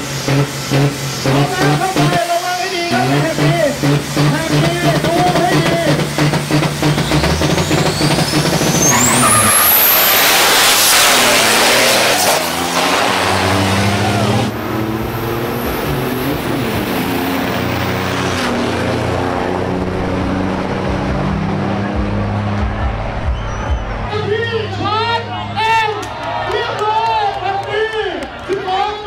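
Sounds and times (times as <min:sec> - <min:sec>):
diesel truck engines racing: 0:00.0 - 0:29.0
high rising whistle: 0:06.8 - 0:17.0, 0:22.7 - 0:24.1.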